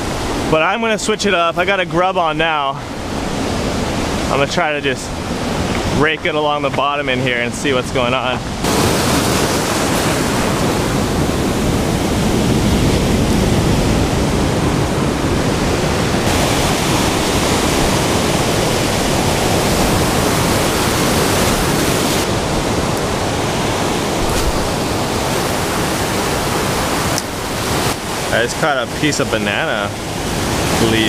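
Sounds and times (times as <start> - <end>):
surf breaking on rocky shore: 0.0 - 31.0.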